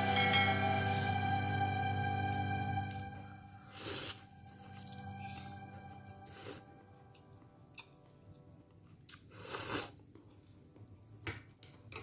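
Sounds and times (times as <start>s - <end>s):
soft chewing: 3.8s - 11.2s
noodle slurp: 9.2s - 10.0s.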